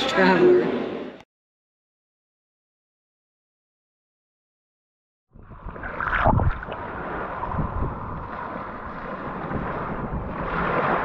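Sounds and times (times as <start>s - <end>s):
wind buffeting microphone: 5.4s - 11.0s
small waves washing on beach: 5.6s - 11.0s.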